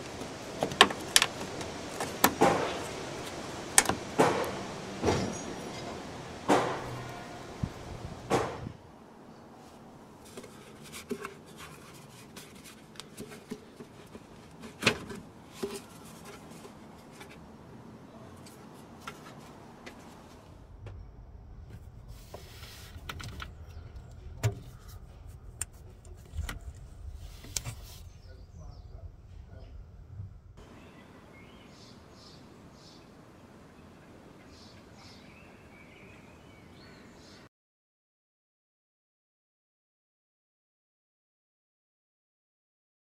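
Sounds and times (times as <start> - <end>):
plastic parts clicking and knocking: 0.0 - 5.2, 10.3 - 17.4
low rumble: 2.8 - 8.9, 20.2 - 31.0.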